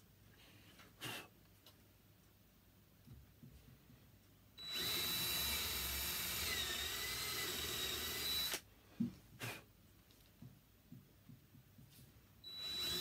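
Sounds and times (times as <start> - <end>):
cordless drill whine: 4.6 - 8.6, 12.4 - 13.0.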